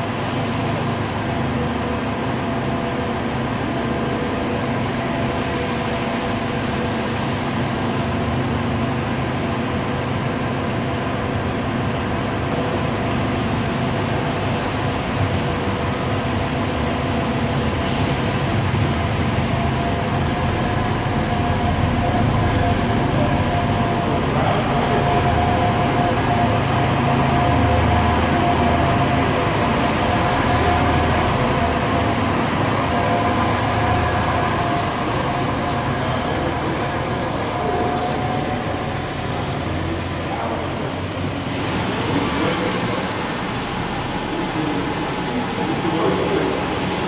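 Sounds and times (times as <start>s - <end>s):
road and wheel noise: 0.0s - 47.0s
steady high whine: 0.0s - 47.0s.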